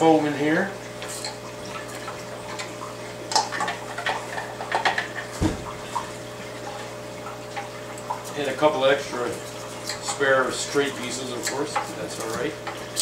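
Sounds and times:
dull low thump: 0:05.4 - 0:05.8.

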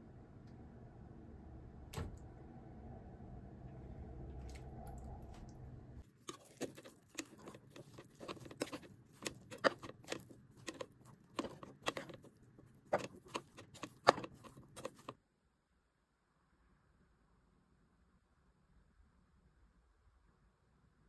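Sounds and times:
rice paddle scraping pot: 0:06.1 - 0:15.2.

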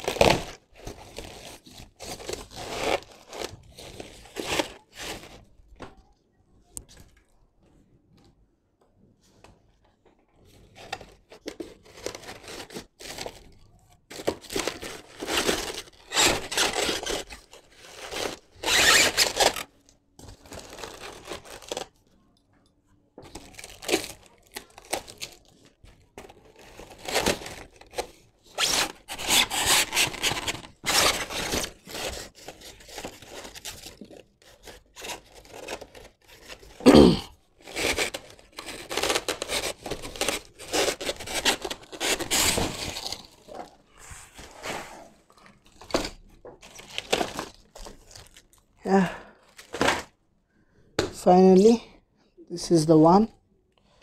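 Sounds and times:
cardboard and foam tearing: 0:00.0 - 0:05.4, 0:10.8 - 0:19.7, 0:20.3 - 0:21.9, 0:23.3 - 0:43.5, 0:44.2 - 0:49.0.

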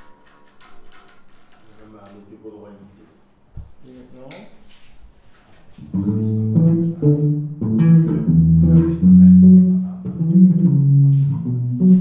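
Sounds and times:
electric bass guitar plucked notes: 0:05.8 - 0:12.0.

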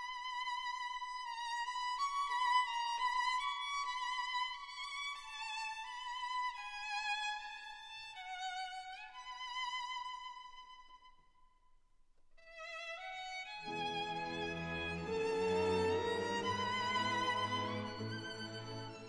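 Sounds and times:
slow violin melody: 0:12.4 - 0:19.0.

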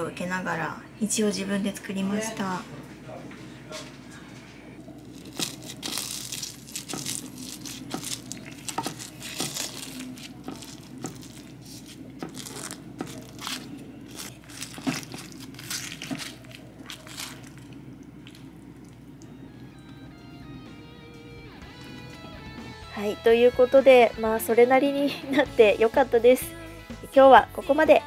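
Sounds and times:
spatula crunching cheese crust: 0:05.0 - 0:18.5.

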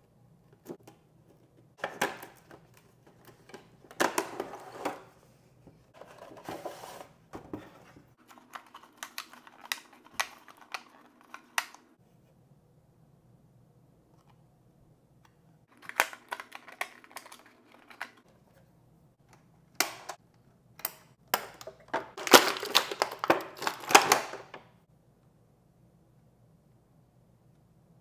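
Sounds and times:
plastic packaging crackling: 0:21.6 - 0:24.6.

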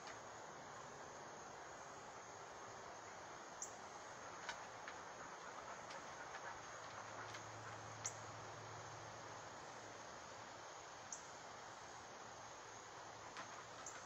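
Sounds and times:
steady high hiss: 0:00.0 - 0:14.0.

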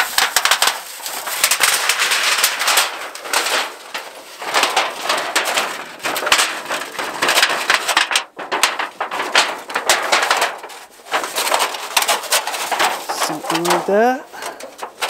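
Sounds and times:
thin metal sheet crinkling: 0:00.0 - 0:15.0.

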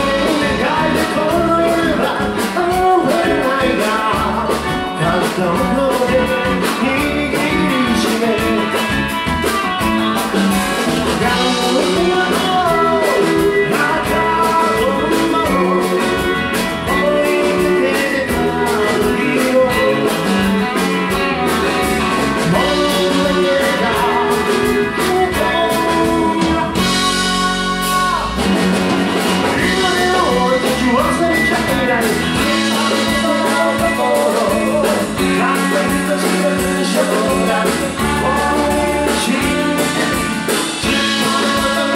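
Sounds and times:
drum kit: 0:00.0 - 0:41.9
electric bass: 0:00.0 - 0:41.9
electric guitar: 0:00.0 - 0:41.9
woman singing lead: 0:11.1 - 0:28.5, 0:29.5 - 0:41.9.

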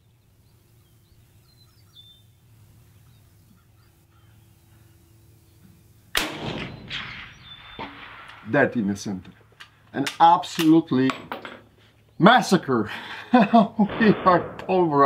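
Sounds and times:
faint bird chirps: 0:00.0 - 0:06.1, 0:07.0 - 0:08.0
suppressed rifle shot with echo: 0:06.1 - 0:08.8, 0:13.8 - 0:15.0.

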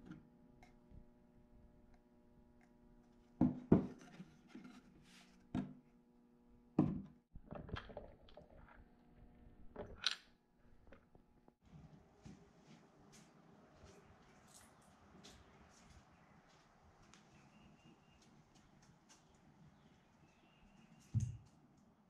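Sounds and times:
objects knocking on workbench: 0:03.4 - 0:04.0, 0:06.8 - 0:07.1.

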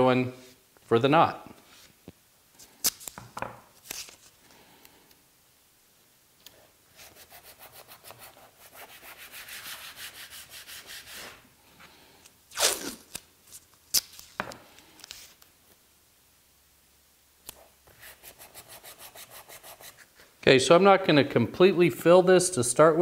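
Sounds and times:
tape pulled off roll crackling: 0:02.6 - 0:04.4, 0:12.2 - 0:15.5
tape tearing: 0:02.6 - 0:04.4, 0:12.5 - 0:15.5.

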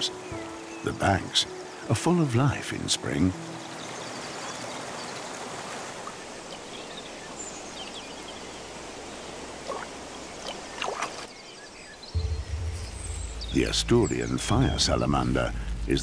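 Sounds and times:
stream rushing over rocks: 0:00.0 - 0:11.4.

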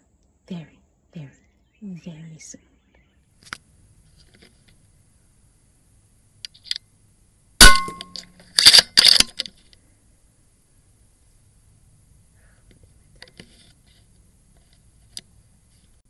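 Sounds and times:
air rifle shot: 0:07.6 - 0:08.2.

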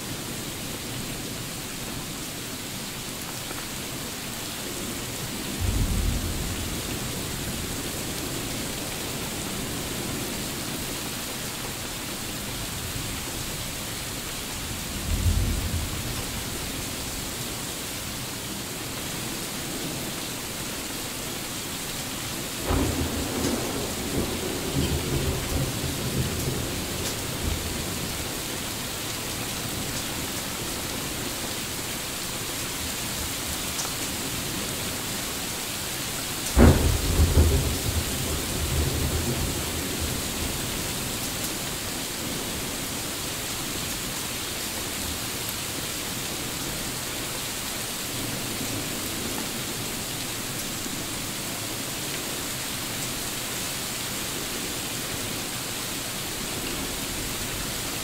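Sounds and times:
heavy rain: 0:00.0 - 0:58.0
thunderclap rumbling: 0:05.6 - 0:07.4, 0:22.6 - 0:28.0, 0:36.6 - 0:40.6.

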